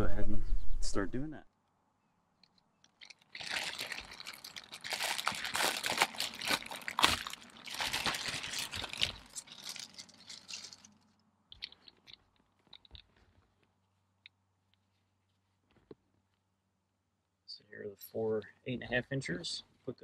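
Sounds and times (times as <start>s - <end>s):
packaging crinkling and rustling: 2.5s - 13.8s.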